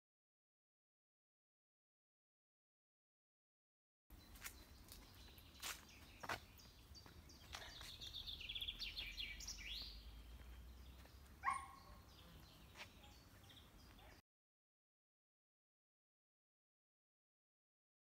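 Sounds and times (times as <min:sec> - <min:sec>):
songbirds chirping: 0:04.1 - 0:14.2.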